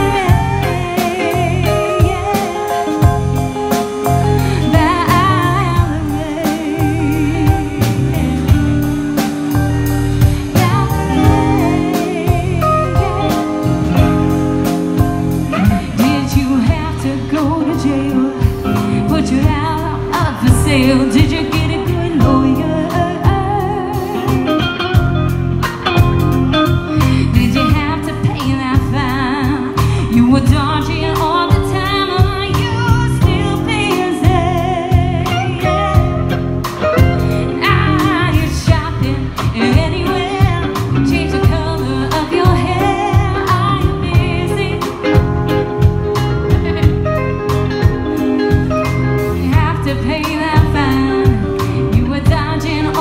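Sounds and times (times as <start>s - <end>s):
drum kit beat: 0.0s - 53.0s
woman singing lead: 0.0s - 53.0s
second female voice singing: 10.5s - 13.8s, 15.5s - 24.4s.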